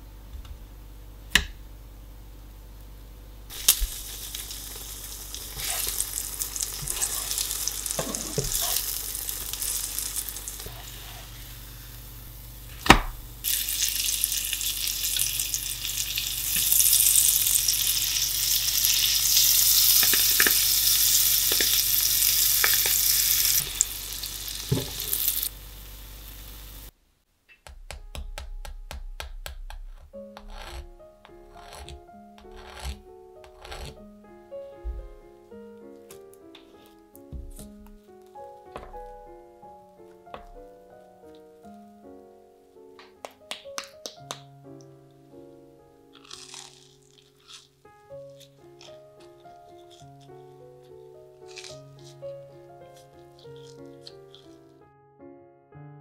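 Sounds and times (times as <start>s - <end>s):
butter sizzling in a frying pan: 3.5s - 12.4s, 13.4s - 26.9s.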